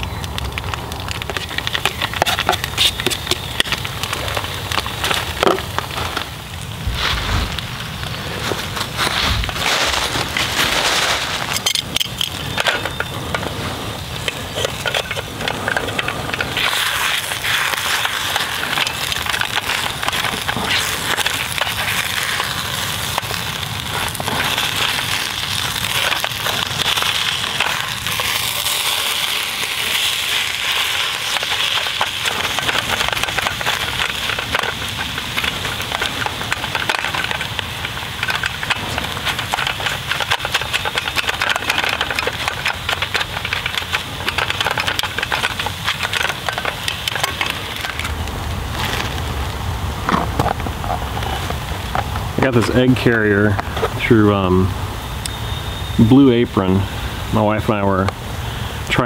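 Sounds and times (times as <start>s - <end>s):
eggs and ham sizzling in skillet: 0.0s - 53.3s
spatula scraping skillet: 1.1s - 6.2s, 6.9s - 48.1s.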